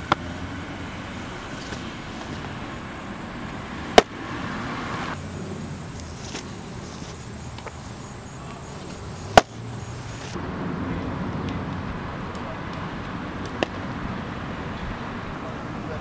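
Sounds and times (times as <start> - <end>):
baseball popping into mitt: 3.9 - 4.2, 9.3 - 9.6, 13.4 - 13.8.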